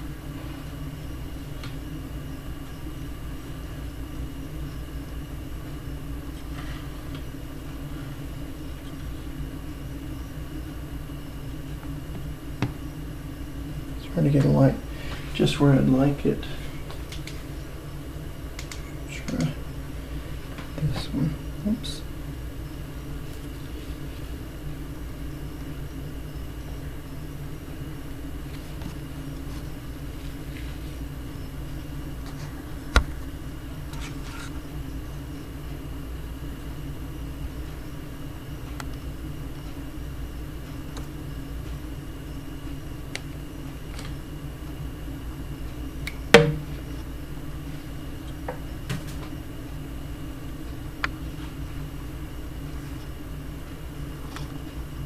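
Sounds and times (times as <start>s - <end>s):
steady low hum: 0.0s - 55.0s
sharp ringing knock: 46.4s - 46.7s.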